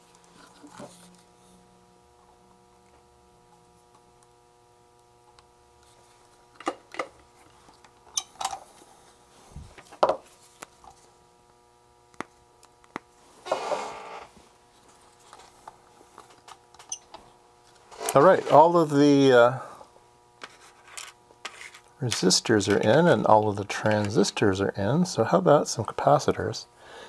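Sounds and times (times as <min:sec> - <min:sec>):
faint steady hum: 0:00.0 - 0:27.0
scraping rustle: 0:17.8 - 0:18.8.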